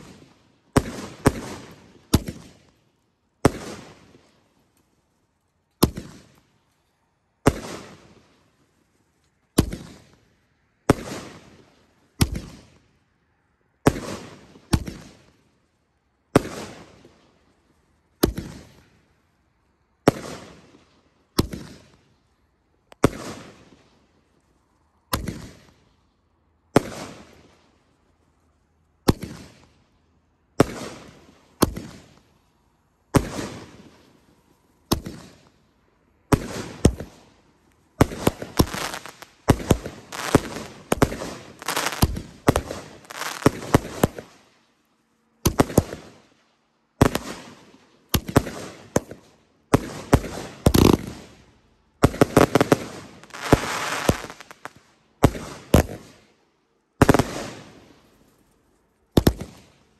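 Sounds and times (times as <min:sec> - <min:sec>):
fireworks bangs and crackles: 0:00.0 - 0:02.8, 0:03.4 - 0:04.3, 0:05.8 - 0:06.4, 0:07.5 - 0:08.3, 0:09.6 - 0:10.2, 0:10.9 - 0:12.8, 0:13.9 - 0:15.4, 0:16.4 - 0:17.2, 0:18.2 - 0:18.9, 0:20.0 - 0:22.1, 0:23.0 - 0:24.0, 0:25.1 - 0:25.8, 0:26.7 - 0:27.6, 0:29.0 - 0:29.8, 0:30.6 - 0:32.3, 0:33.1 - 0:35.5, 0:36.3 - 0:44.5, 0:45.4 - 0:46.3, 0:47.0 - 0:56.3, 0:57.0 - 0:58.0, 0:59.1 - 0:59.8.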